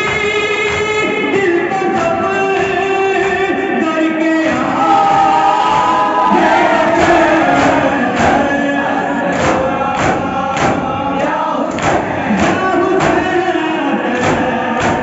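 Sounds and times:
men chanting in chorus: 0.0s - 15.0s
hands striking chests: 11.7s - 13.4s, 14.2s - 15.0s.

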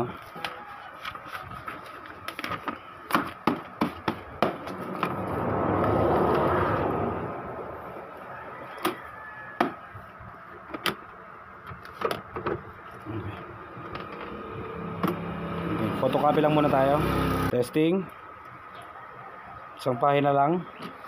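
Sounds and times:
paper handling: 0.1s - 3.5s
rush of noise: 4.4s - 8.7s.

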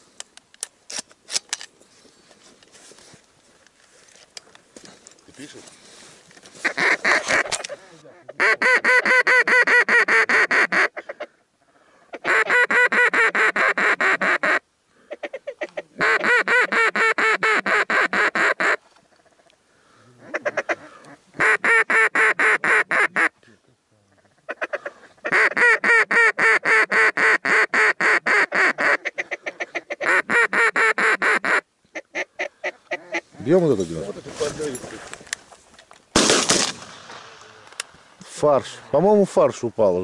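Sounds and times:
duck quacking: 6.6s - 11.3s, 20.2s - 23.3s, 24.1s - 33.4s.

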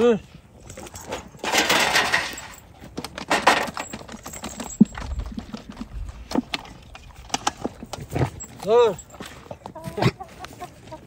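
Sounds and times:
dog chain rattling: 0.7s - 5.5s.

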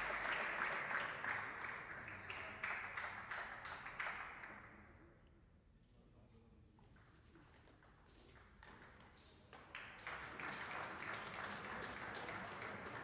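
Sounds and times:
spectators applauding: 0.0s - 4.5s, 9.7s - 13.0s.

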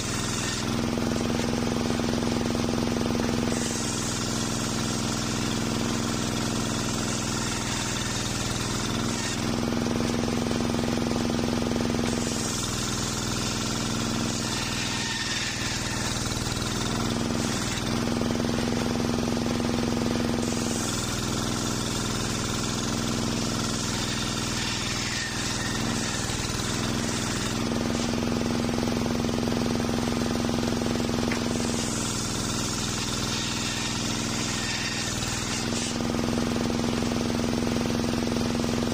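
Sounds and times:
saw blade cutting timber: 0.0s - 38.9s
table saw humming: 0.0s - 38.9s.

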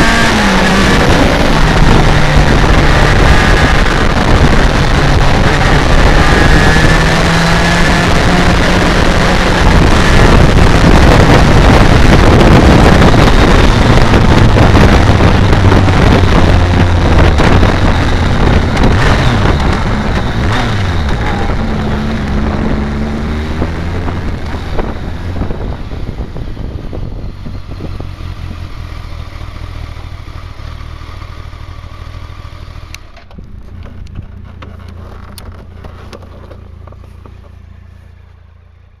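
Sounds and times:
wind rush: 0.0s - 28.9s
motorcycle engine: 0.0s - 39.0s.

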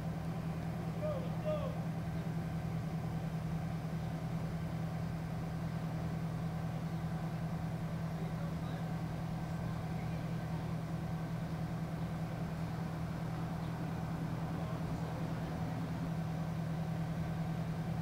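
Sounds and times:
road noise: 0.0s - 18.0s
vehicle engine low drone: 0.0s - 18.0s.

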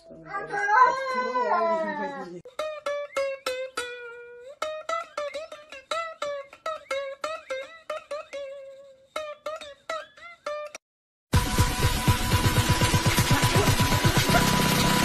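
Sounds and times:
plucked-string melody: 2.5s - 10.8s.

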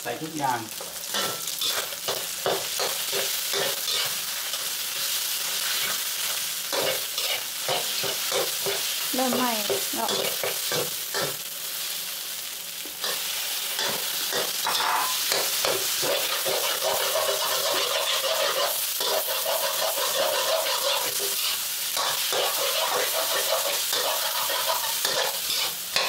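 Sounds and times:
food sizzling: 0.0s - 26.0s
metal spatula scraping wok: 0.9s - 4.6s, 6.7s - 9.4s, 13.0s - 26.0s.

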